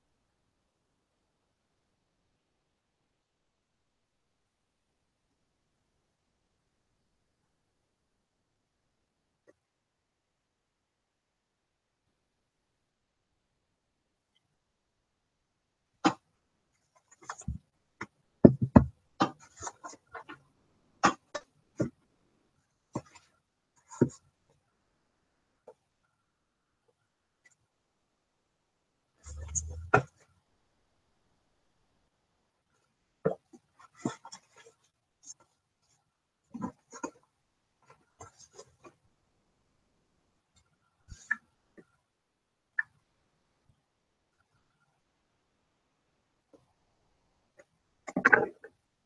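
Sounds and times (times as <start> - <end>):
objects clicking and knocking on desk: 17.0 - 20.4.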